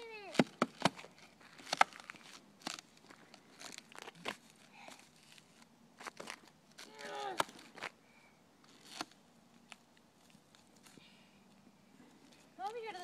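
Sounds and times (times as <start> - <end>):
thin ice cracking underfoot: 0.9 - 7.9.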